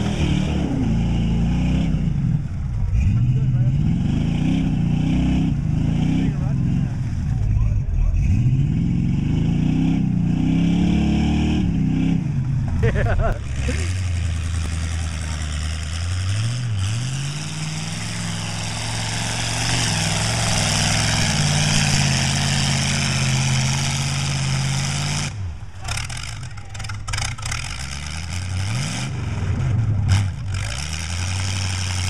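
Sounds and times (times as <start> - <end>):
spinning tires and flying mud: 0.0 - 32.0
truck engine revving: 0.0 - 32.0.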